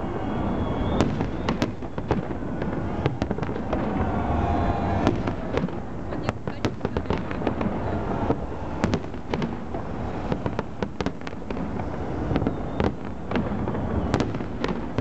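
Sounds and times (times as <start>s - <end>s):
fireworks bangs: 0.0s - 15.0s
low rumble: 2.8s - 6.1s.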